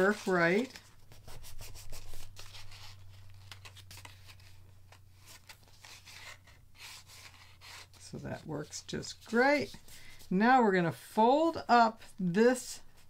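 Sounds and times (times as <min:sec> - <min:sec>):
paper rustling and scraping: 0:00.0 - 0:10.3.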